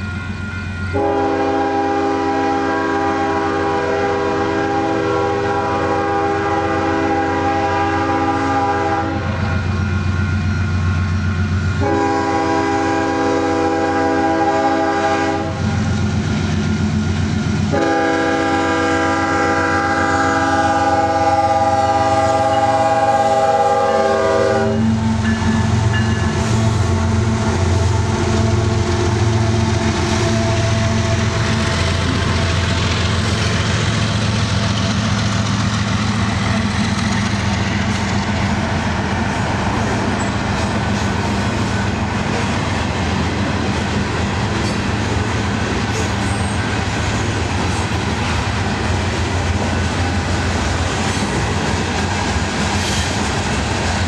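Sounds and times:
locomotive engines rumbling: 0.0 - 54.0
train rolling on rails: 0.0 - 54.0
locomotive horn blasts: 0.9 - 9.5, 11.8 - 15.7, 17.7 - 31.6.

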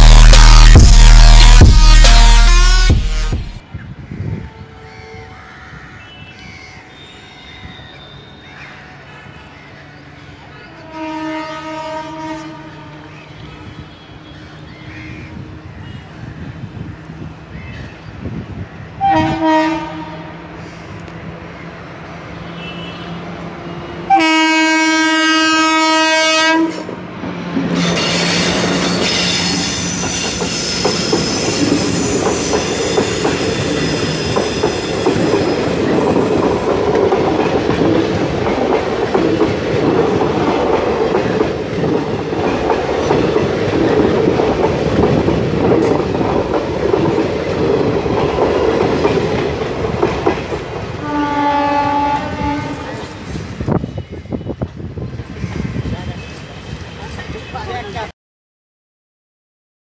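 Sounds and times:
locomotive air horn blast: 0.0 - 3.6, 10.8 - 14.4, 19.0 - 20.6, 22.4 - 23.3, 24.0 - 27.0, 51.0 - 53.2
train wheels clacking over rail joints: 27.6 - 51.2.

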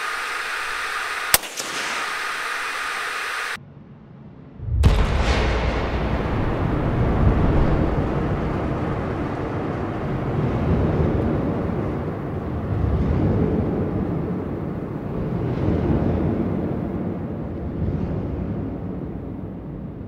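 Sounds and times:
deep drawn-out rumble: 3.6 - 20.0.

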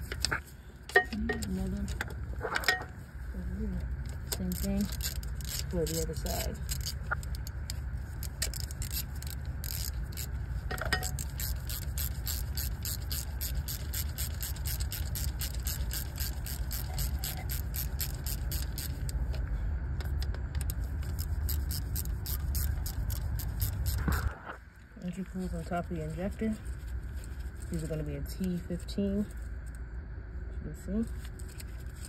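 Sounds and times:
steady low rumble: 0.0 - 32.0
ratchet clicking: 4.2 - 19.2, 20.6 - 24.2.

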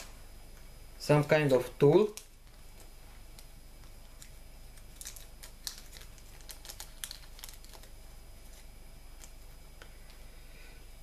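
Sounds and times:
light plastic crinkling: 2.0 - 10.2.

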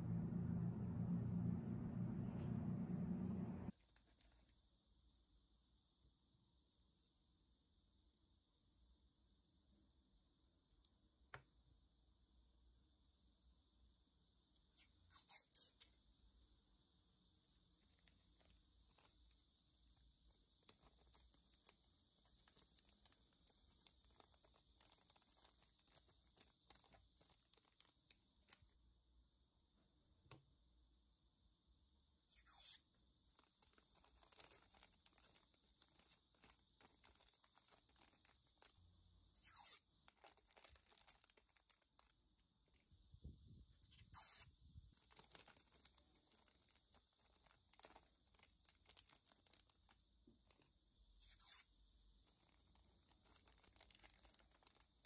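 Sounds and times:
plastic bags crinkling: 20.8 - 28.6, 33.3 - 42.8, 43.8 - 50.7, 52.2 - 55.0.

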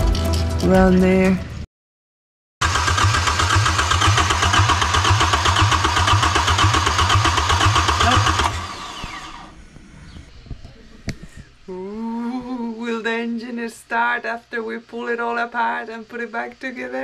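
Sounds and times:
diesel engine running: 2.6 - 9.6.

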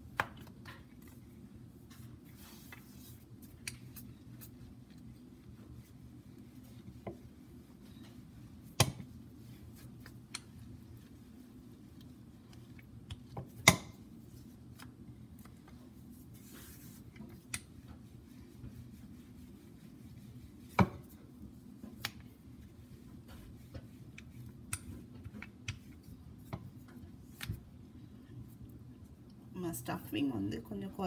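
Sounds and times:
rolling pin tapping on countertop: 8.8 - 9.1.

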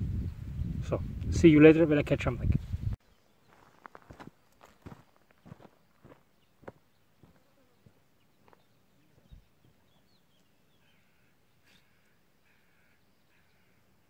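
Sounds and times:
distant bird calls: 3.0 - 14.0
faint footsteps on gravel: 3.3 - 10.0.

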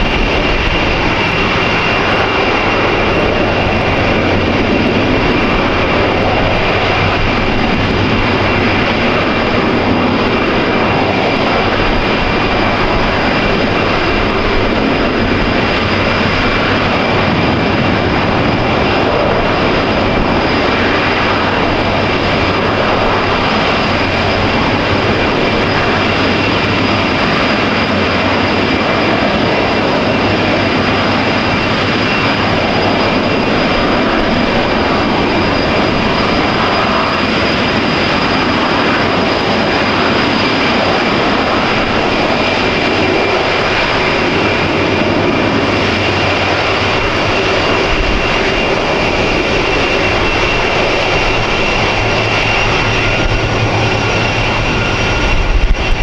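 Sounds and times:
jet engines running: 0.0 - 56.0.

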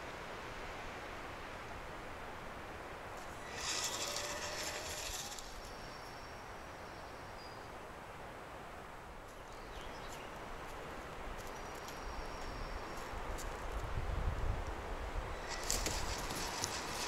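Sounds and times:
hissing rustle: 3.2 - 6.2, 15.2 - 17.0.

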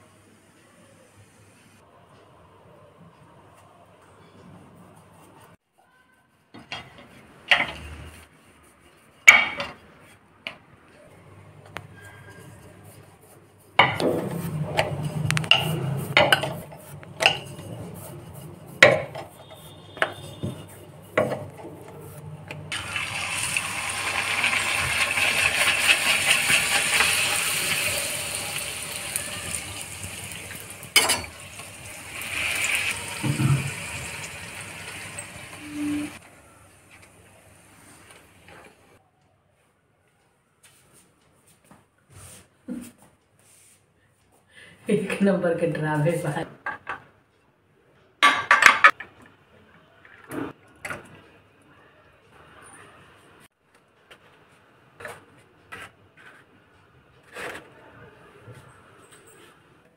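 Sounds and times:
hot oil sizzling: 22.7 - 36.2.

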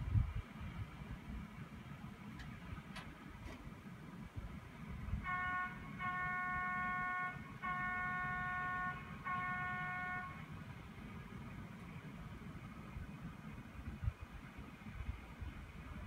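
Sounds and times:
horn blasts: 5.1 - 10.5.

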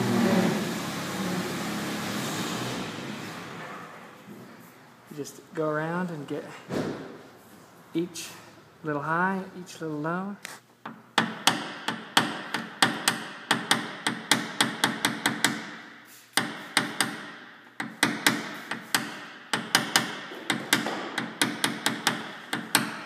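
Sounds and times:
hammer tapping metal punch: 10.8 - 15.8, 16.4 - 23.0.

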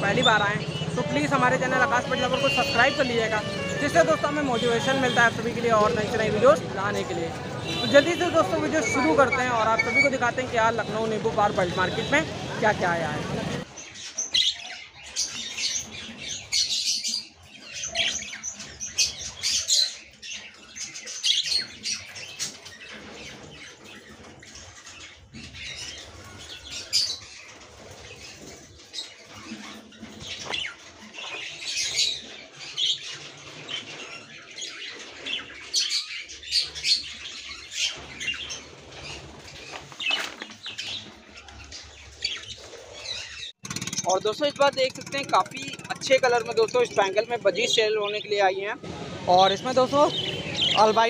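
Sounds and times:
small birds chirping: 0.0 - 12.8, 13.4 - 51.0
wing fluttering: 42.6 - 48.5.

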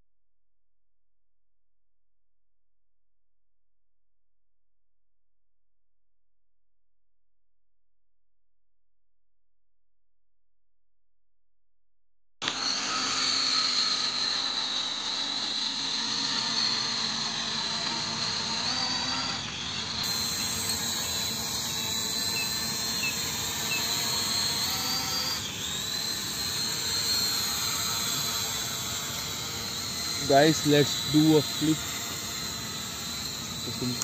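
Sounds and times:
toy drone motors whining: 12.4 - 34.0.

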